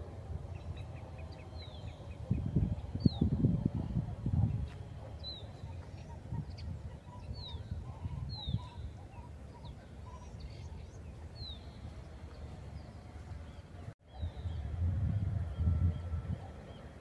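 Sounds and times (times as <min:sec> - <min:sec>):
low rumble: 0:14.2 - 0:16.5.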